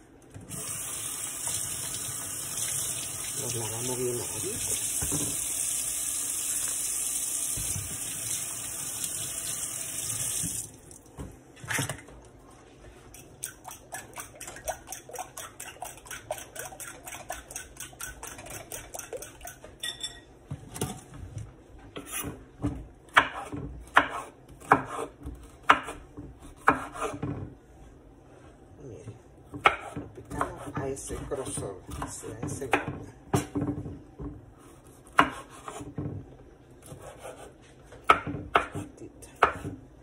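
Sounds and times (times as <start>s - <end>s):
kitchen tap running: 0.4s - 11.2s
fork beating eggs in glass bowl: 13.2s - 19.6s
knife on wooden cutting board: 22.0s - 22.4s, 34.6s - 36.0s, 36.8s - 39.7s.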